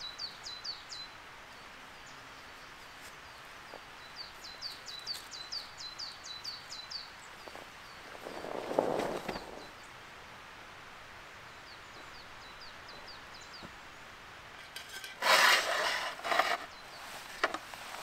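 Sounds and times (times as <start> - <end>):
loud rough rustling: 8.0 - 9.7, 14.8 - 18.0.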